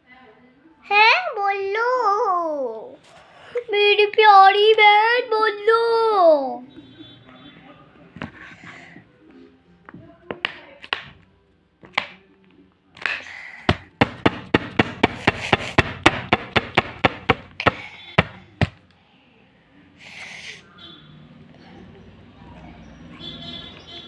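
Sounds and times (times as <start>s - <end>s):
knocking on plastic bottle: 13.0s - 18.8s.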